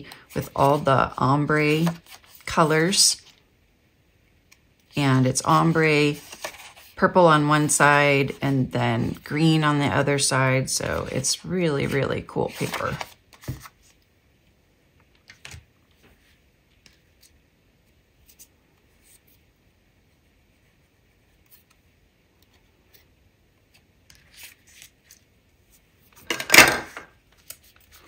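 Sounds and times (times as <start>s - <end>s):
cardstock rustling pressed flat: 0.1s - 3.4s, 5.6s - 7.0s, 10.8s - 14.0s.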